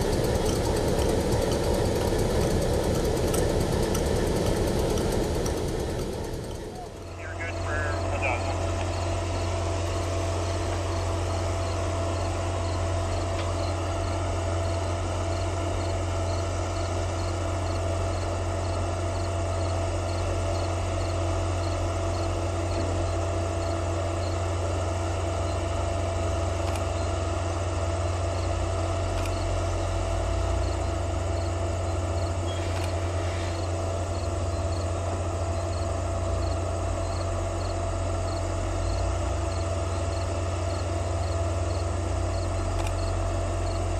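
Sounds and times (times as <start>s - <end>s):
constant low hum: 0.0s - 43.9s
insects chirping: 7.0s - 24.5s, 30.6s - 43.8s.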